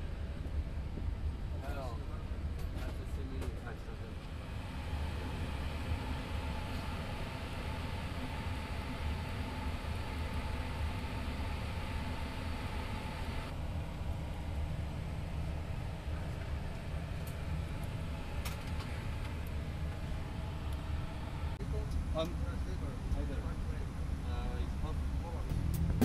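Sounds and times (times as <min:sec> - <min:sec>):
air-conditioning fan noise: 0:00.0 - 0:26.0.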